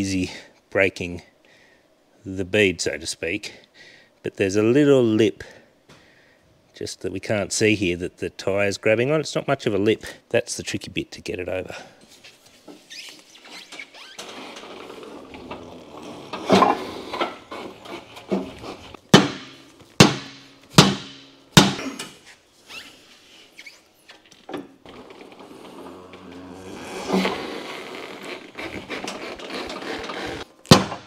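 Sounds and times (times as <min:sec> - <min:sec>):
hammer striking tyre rim: 0:19.1 - 0:21.9.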